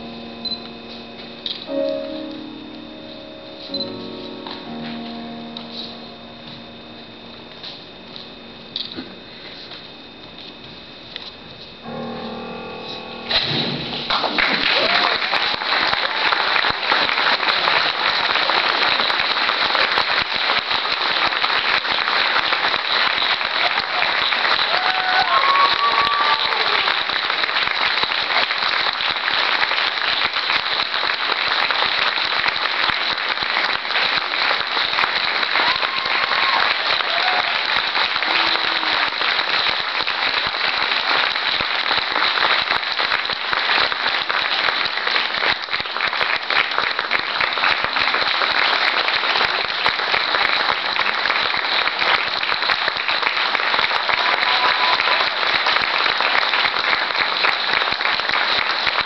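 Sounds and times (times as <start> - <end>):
audience applauding: 13.9 - 59.0.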